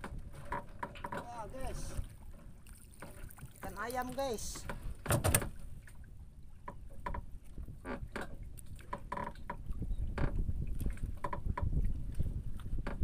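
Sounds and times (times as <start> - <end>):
fish and line knocking on wooden boat: 4.1 - 5.6.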